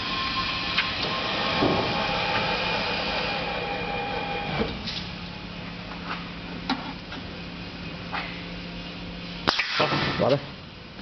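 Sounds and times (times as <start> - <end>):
machine motor whine: 0.0 - 5.9
low machine hum: 0.0 - 11.0
machine clunk: 1.0 - 2.6.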